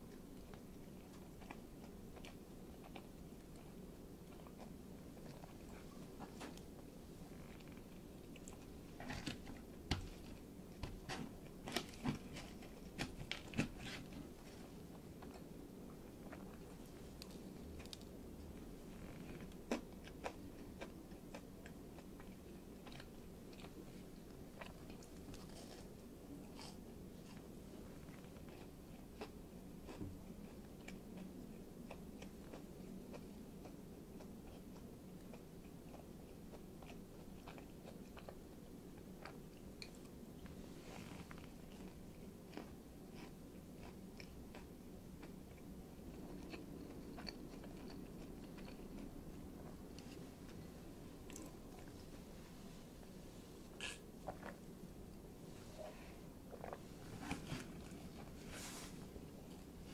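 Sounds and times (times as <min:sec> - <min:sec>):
chewing sandwich: 0:00.1 - 0:52.2, 0:53.8 - 0:55.2, 0:56.5 - 0:59.9
mouth clicks and crunches: 0:53.7 - 0:54.6.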